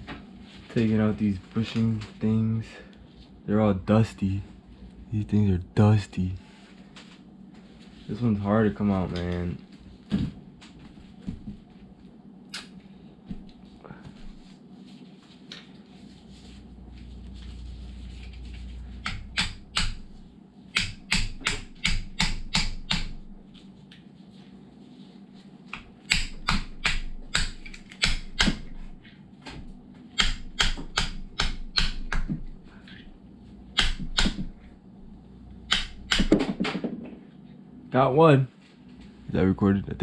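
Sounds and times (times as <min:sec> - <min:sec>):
hammer tapping on bushing: 0:18.9 - 0:20.1.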